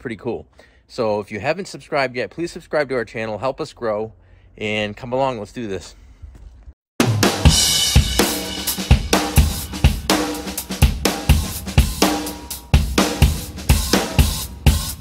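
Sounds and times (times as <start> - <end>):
drum kit beat: 7.0 - 15.0.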